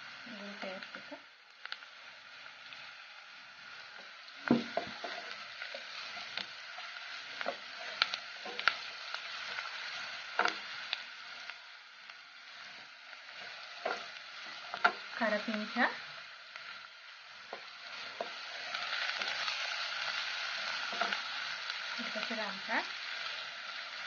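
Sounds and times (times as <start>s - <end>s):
onions sizzling in oil: 0.0s - 24.0s
wooden spatula scraping and knocking pan: 4.4s - 6.4s, 7.3s - 9.6s, 10.3s - 10.7s, 13.4s - 15.7s, 20.7s - 21.2s.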